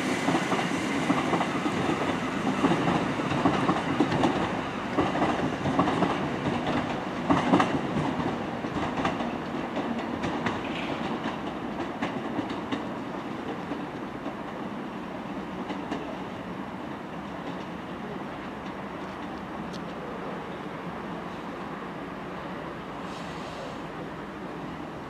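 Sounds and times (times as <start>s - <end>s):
train engine drone and rumble: 0.0s - 25.0s
train wheels clicking over joints: 0.2s - 14.6s.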